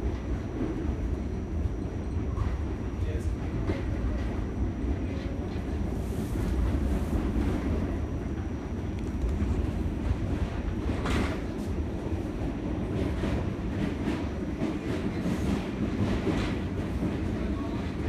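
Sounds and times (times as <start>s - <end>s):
subway train rumble: 0.0s - 18.0s
wheels clacking on rails: 8.9s - 18.0s.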